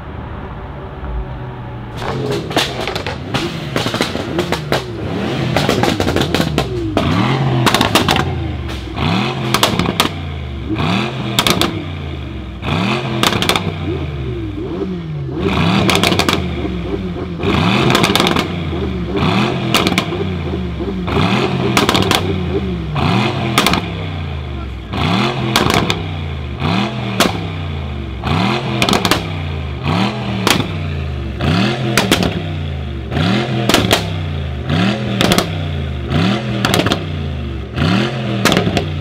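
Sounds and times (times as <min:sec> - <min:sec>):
car engine revving: 0:00.0 - 0:39.0
exhaust crackles and pops: 0:02.0 - 0:11.8, 0:13.2 - 0:14.0, 0:15.8 - 0:22.6, 0:23.5 - 0:24.1, 0:25.5 - 0:26.1, 0:27.1 - 0:27.6, 0:28.7 - 0:29.4, 0:30.4 - 0:30.9, 0:31.9 - 0:32.5, 0:33.6 - 0:34.2, 0:35.1 - 0:35.7, 0:36.6 - 0:37.2, 0:38.4 - 0:39.0.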